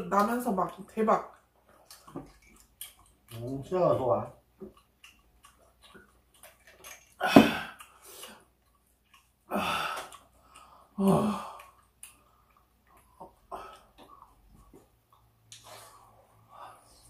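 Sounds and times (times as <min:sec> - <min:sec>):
person sighing heavily: 0:07.2 - 0:07.8, 0:09.5 - 0:10.1, 0:10.9 - 0:11.8.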